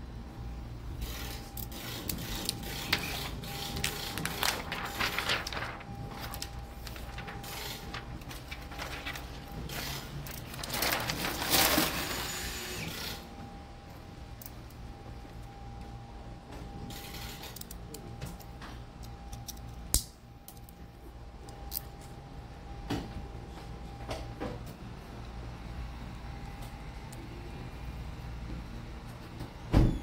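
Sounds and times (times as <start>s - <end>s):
faint steady hum: 0.0s - 29.8s
plastic film crackling: 2.0s - 12.6s.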